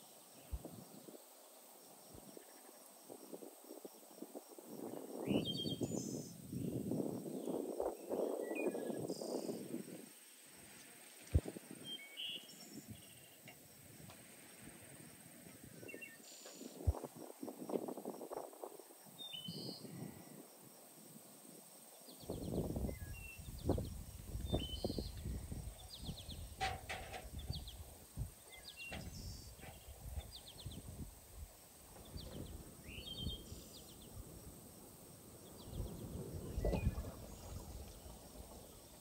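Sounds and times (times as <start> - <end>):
small birds singing: 4.9 - 9.7, 11.8 - 13.5, 15.8 - 16.8, 19.2 - 19.9, 21.9 - 31.0, 31.9 - 34.3, 35.4 - 39.0
handling rustling and knocks: 26.6 - 27.4.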